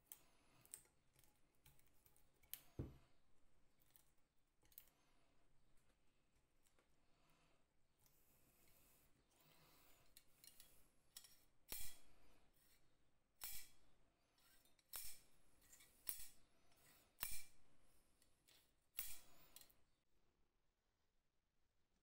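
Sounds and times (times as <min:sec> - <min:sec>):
spring-loaded tool clicking: 0:10.1 - 0:12.2, 0:13.4 - 0:13.8, 0:14.4 - 0:16.4, 0:17.2 - 0:17.6, 0:18.4 - 0:19.8.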